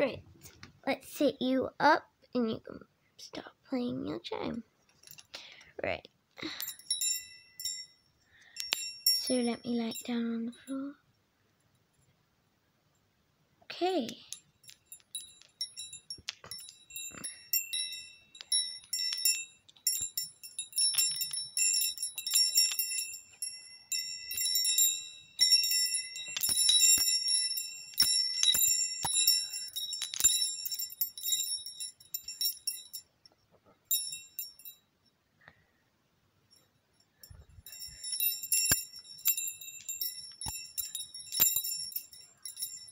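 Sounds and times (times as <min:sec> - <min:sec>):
metal wind chime jangling: 0:05.0 - 0:05.3, 0:06.4 - 0:10.9, 0:14.1 - 0:34.9, 0:36.5 - 0:42.9.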